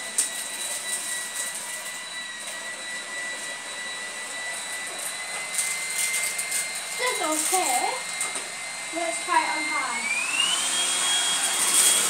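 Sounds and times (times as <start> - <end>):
vacuum motor whining: 0.0 - 12.0.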